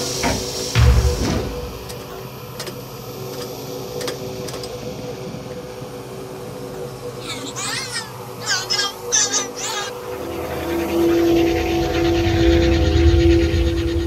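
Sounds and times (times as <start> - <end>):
mechanical electronic hum: 0.0 - 14.0.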